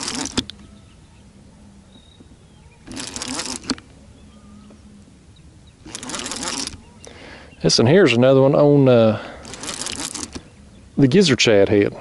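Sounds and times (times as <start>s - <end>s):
fishing reel cranking: 0.0s - 0.5s, 2.8s - 3.9s, 5.8s - 6.8s, 9.4s - 10.5s.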